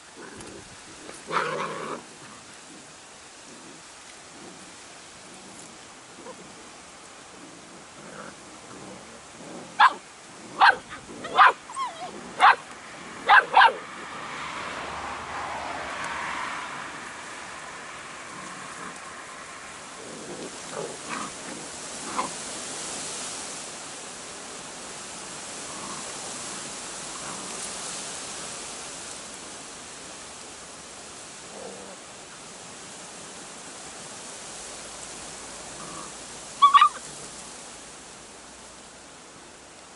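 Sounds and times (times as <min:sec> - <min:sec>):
storm wind through trees: 0:00.0 - 0:39.9
puppies yapping: 0:09.8 - 0:10.0, 0:10.6 - 0:14.0, 0:36.6 - 0:37.1
puppy whining: 0:10.7 - 0:12.6, 0:36.6 - 0:37.1.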